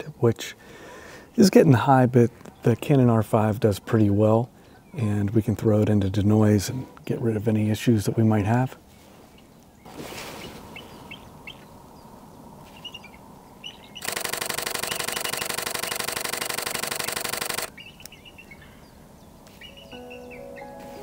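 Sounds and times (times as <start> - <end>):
eagle chittering calls: 12.7 - 20.6
camera shutter burst: 14.0 - 17.7.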